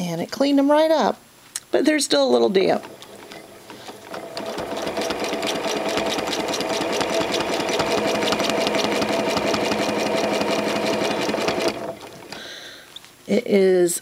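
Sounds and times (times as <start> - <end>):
sewing machine stitching: 2.4 - 12.5.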